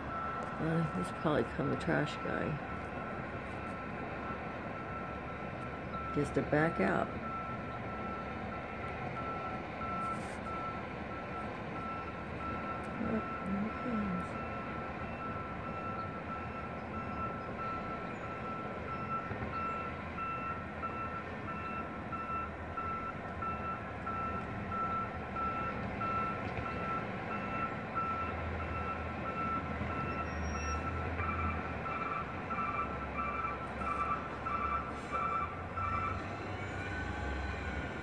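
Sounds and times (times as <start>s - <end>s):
reversing alarm beeps: 0.0s - 38.0s
second reversing alarm beeping: 0.0s - 38.0s
truck engine running: 0.0s - 38.0s.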